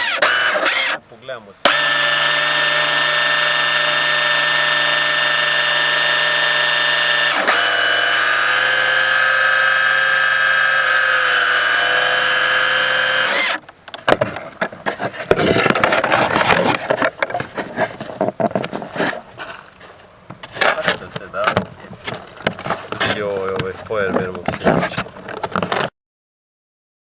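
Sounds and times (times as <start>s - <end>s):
small electric motor whining: 0.0s - 1.0s, 1.6s - 13.7s
knocks and scrapes from handling: 13.9s - 25.9s.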